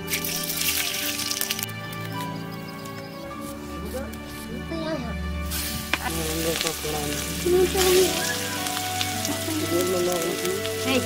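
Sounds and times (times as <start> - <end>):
oil sizzling in a wok: 0.1 - 1.6, 5.4 - 11.0.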